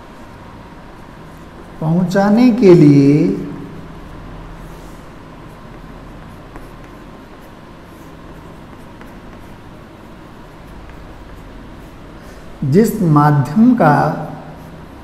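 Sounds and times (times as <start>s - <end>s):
steady electrical hum: 0.0s - 15.0s
pen scratching while writing: 4.0s - 12.5s.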